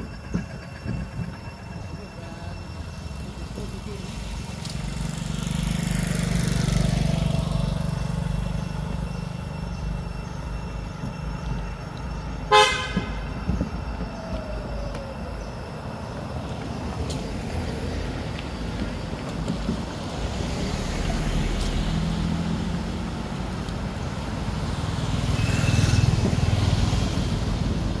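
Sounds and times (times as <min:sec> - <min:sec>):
road traffic: 0:00.0 - 0:28.0
motorbike engine passing: 0:02.9 - 0:13.5, 0:17.3 - 0:28.0
vehicle horn beep: 0:12.4 - 0:13.4, 0:25.3 - 0:26.6.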